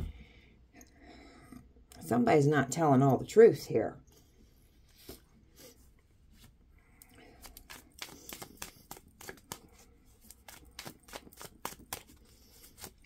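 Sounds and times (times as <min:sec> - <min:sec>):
cards being shuffled: 0:07.2 - 0:13.0.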